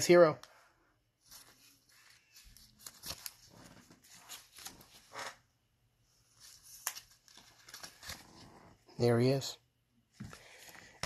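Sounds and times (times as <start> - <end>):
trading cards rustling: 1.2 - 5.4, 6.3 - 8.8.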